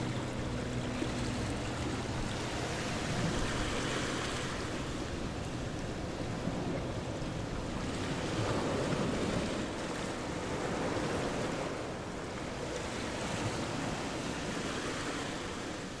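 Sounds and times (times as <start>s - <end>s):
steady rushing noise: 0.0s - 9.8s.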